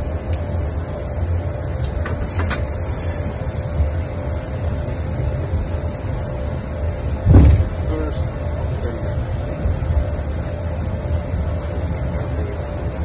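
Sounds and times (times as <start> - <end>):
faint steady hum: 0.0 - 13.0
low rumble: 0.0 - 13.0
loud low thump: 7.2 - 7.8.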